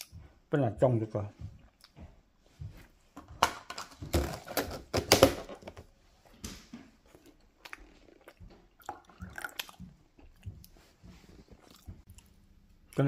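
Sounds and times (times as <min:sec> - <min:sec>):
chewing: 0:01.6 - 0:02.1, 0:07.0 - 0:13.0.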